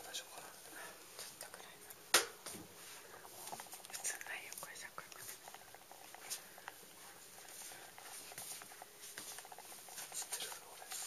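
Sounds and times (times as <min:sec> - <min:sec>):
soft clicks and light taps: 0:01.2 - 0:11.0
faint rustling: 0:02.5 - 0:11.0.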